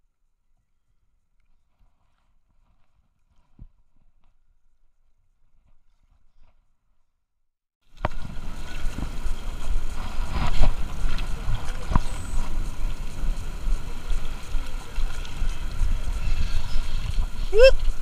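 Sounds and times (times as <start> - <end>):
waves lapping at rocks: 7.9 - 18.0
wind buffeting microphone: 8.0 - 18.0.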